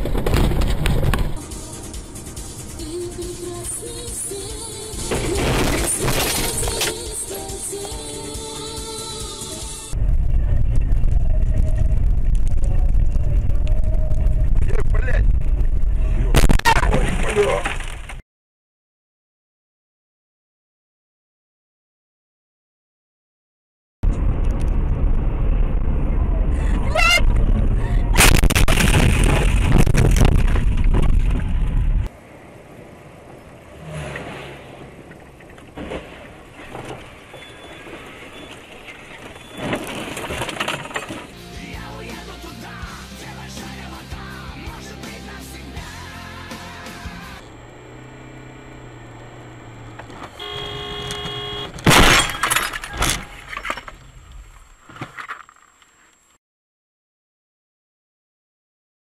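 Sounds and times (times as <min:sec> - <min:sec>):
car crash impacts and crunching: 0:00.0 - 0:01.4, 0:05.0 - 0:07.0, 0:28.2 - 0:31.5, 0:35.6 - 0:41.3, 0:49.4 - 0:54.3
faint road noise: 0:31.2 - 0:41.4, 0:46.6 - 0:56.4
clattering and crunching: 0:37.8 - 0:41.3, 0:51.0 - 0:55.8
car horn: 0:49.0 - 0:52.0.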